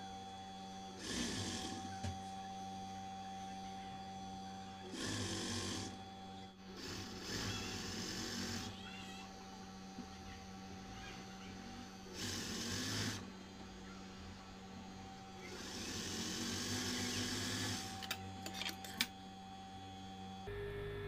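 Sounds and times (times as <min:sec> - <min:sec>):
sewing machine motor hum: 0:00.8 - 0:02.3, 0:04.8 - 0:20.5.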